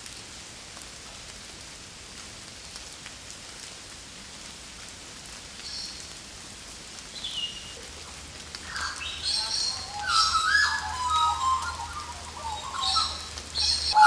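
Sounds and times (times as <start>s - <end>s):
rain hissing in woodland: 0.0s - 14.0s
raindrops ticking: 2.1s - 14.0s
high bird chirps: 8.7s - 14.0s.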